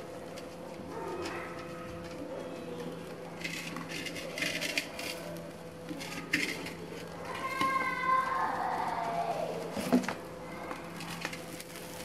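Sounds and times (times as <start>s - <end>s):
steady low hum: 0.0s - 12.0s
wire grill basket clattering: 0.0s - 12.0s.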